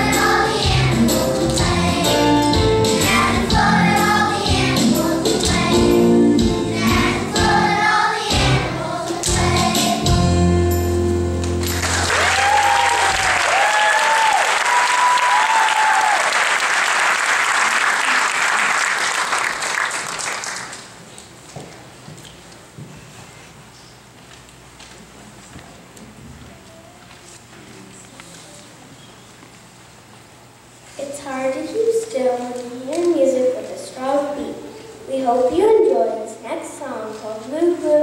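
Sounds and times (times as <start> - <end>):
choir singing with accompaniment: 0.0 - 11.4
audience applauding: 11.5 - 21.0.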